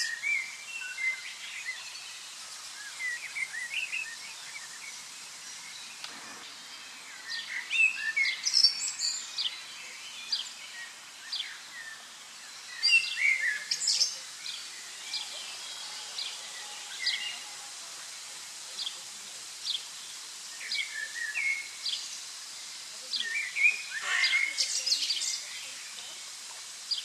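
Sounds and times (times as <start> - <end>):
faint hiss: 0.0 - 27.0
songbirds chirping: 0.0 - 27.0.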